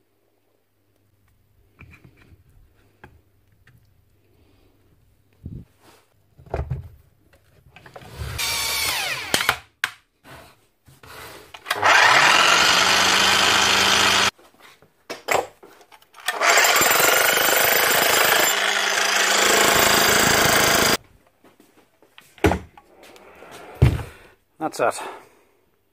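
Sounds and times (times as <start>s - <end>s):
power tool burst winding down: 8.4s - 9.5s, 11.7s - 14.3s, 16.2s - 21.0s
electric demolition breaker running: 11.7s - 14.3s, 16.2s - 21.0s.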